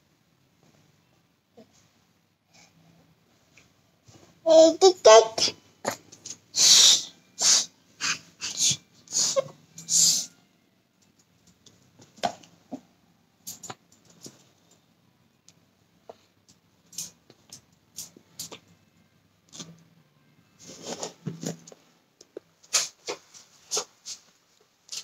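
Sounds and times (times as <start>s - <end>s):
baby breathing noises: 6.6s - 10.4s.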